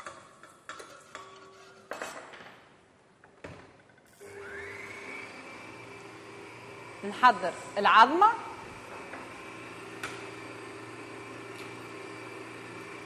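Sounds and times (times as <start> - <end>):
stand mixer motor whine: 4.2 - 7.8, 8.4 - 13.0.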